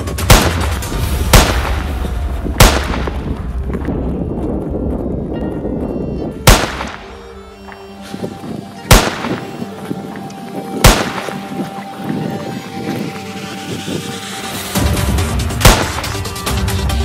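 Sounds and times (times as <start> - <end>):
background music: 0.0 - 17.0
pistol shots: 0.3 - 2.0, 2.6 - 3.3, 6.5 - 7.2, 8.9 - 9.6, 10.8 - 11.6, 15.6 - 16.4.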